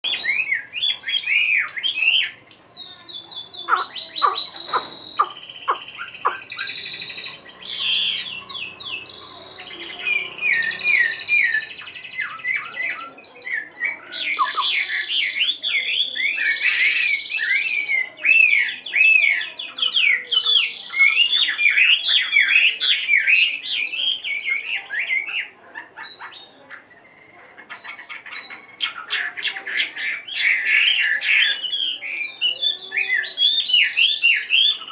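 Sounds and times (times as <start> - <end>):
bird singing varied song: 0.0 - 34.9.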